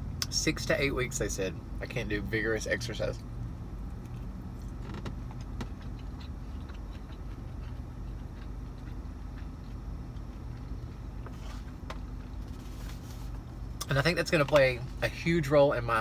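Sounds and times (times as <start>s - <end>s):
car idling hum: 0.0s - 16.0s
chewing: 3.9s - 11.7s.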